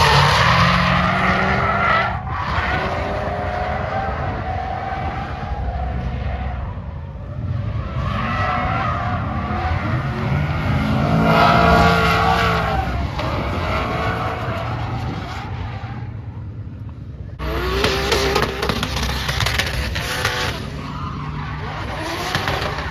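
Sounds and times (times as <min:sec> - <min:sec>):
car engine revving: 0:05.0 - 0:16.3, 0:17.4 - 0:22.9.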